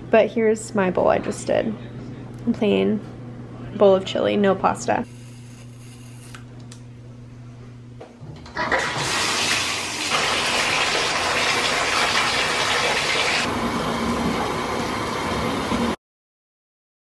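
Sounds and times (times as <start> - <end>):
faucet water splashing into tub: 8.7 - 13.5.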